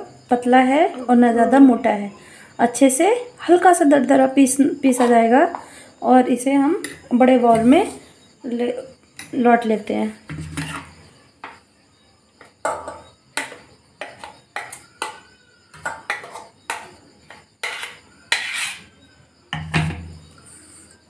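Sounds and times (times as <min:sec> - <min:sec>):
metal spoon scraping steel jar: 0:17.6 - 0:18.9.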